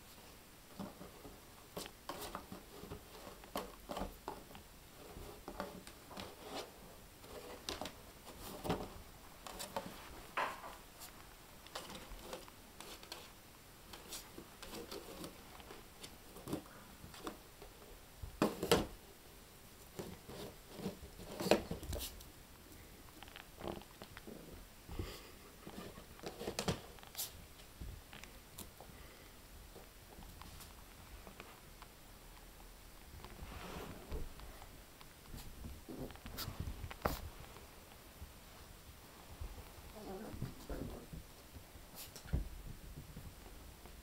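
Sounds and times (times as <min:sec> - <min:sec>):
puppy paws pattering: 0:29.6 - 0:44.0
cardboard box scraping on carpet: 0:33.4 - 0:34.1.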